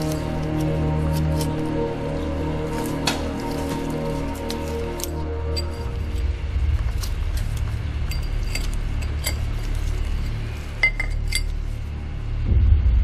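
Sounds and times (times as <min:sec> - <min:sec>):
steady low hum: 0:00.0 - 0:13.0
metal parts clinking on tray: 0:06.9 - 0:11.8.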